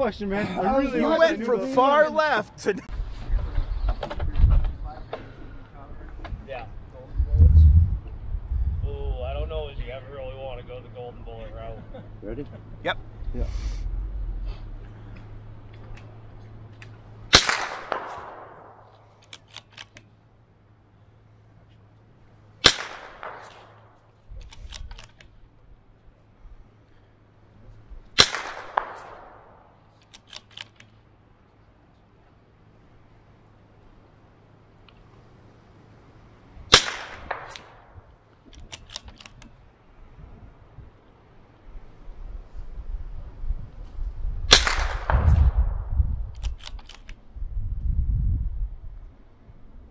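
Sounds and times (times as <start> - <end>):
rifle shots: 17.3 - 19.9, 22.6 - 25.1, 28.2 - 30.8, 36.7 - 38.0, 44.5 - 47.1
rifle bolt clicks: 17.9 - 20.1, 24.4 - 25.3, 30.0 - 31.0, 38.5 - 39.5, 46.3 - 47.2.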